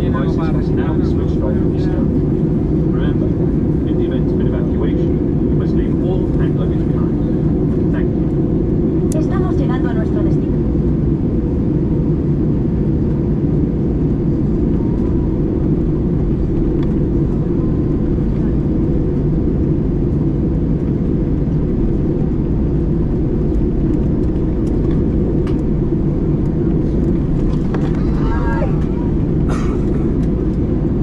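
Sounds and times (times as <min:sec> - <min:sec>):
airplane cabin engine roar: 0:00.0 - 0:31.0.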